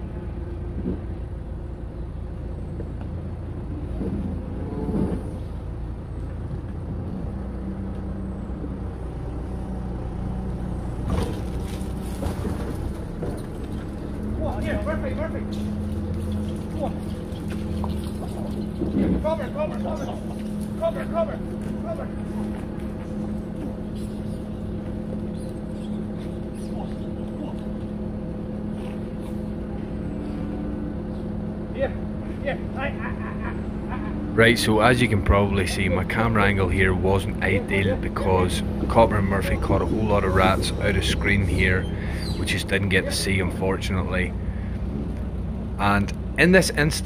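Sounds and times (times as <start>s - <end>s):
diesel engine running: 0.0s - 47.0s.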